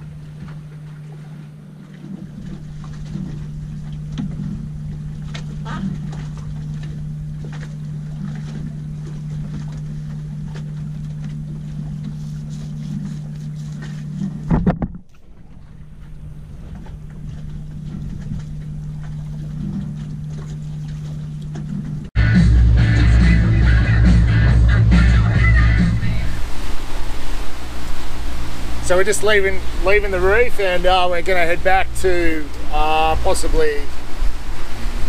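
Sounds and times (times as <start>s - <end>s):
wind: 0.0s - 22.2s, 23.1s - 35.0s
boat engine droning: 0.0s - 35.0s
water noise: 0.0s - 35.0s.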